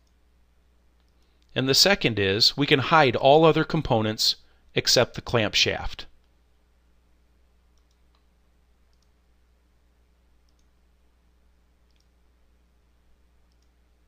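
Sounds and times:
low electrical hum: 0.0s - 14.0s
faint computer mouse clicks: 7.8s - 8.3s, 8.9s - 9.2s, 10.4s - 10.7s, 11.9s - 12.2s, 13.5s - 13.8s.

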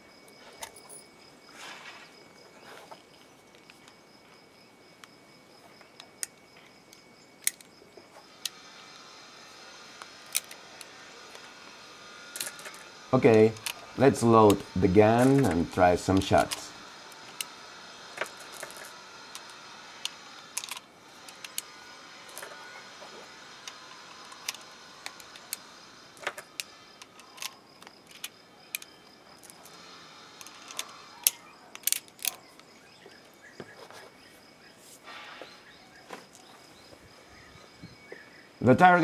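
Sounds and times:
metallic clicks of revolver loading: 30.4s - 32.7s.

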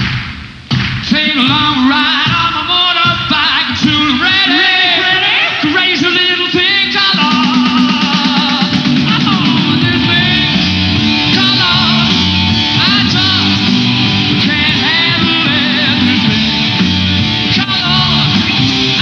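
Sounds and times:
drums: 0.0s - 19.0s
lead singer: 1.0s - 19.0s
electric guitar: 7.2s - 19.0s.

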